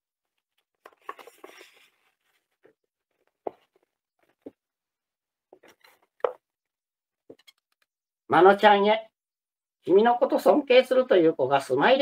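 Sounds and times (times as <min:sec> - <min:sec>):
paper card rustling: 0:00.4 - 0:02.8.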